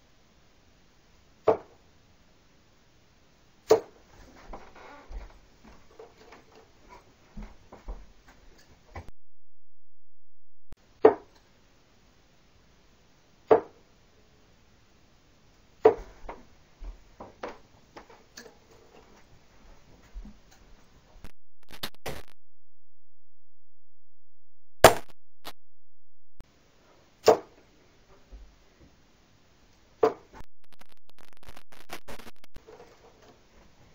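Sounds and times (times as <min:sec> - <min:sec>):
darts thudding into dartboard: 0:27.2 - 0:27.5.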